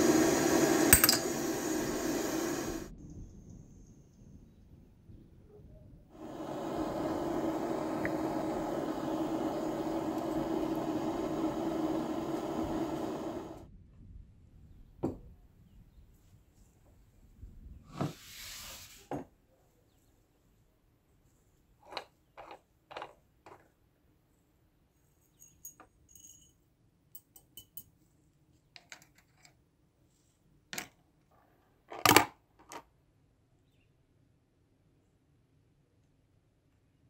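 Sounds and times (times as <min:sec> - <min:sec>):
brief hiss: 0:00.0 - 0:02.9, 0:06.1 - 0:13.7, 0:17.9 - 0:19.1
noisy hum: 0:00.0 - 0:02.9, 0:06.1 - 0:13.7.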